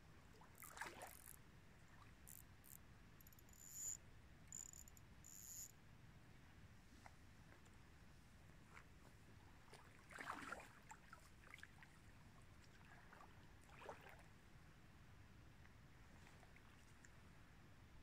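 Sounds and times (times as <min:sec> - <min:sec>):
river water splashing: 0:00.4 - 0:01.2, 0:09.7 - 0:11.9.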